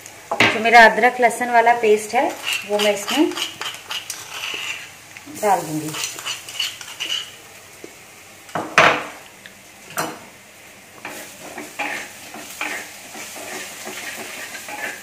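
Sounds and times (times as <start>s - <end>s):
oil sizzling: 0.0s - 15.0s
spoon scraping while stirring: 2.2s - 5.0s, 5.9s - 7.4s, 11.1s - 15.0s.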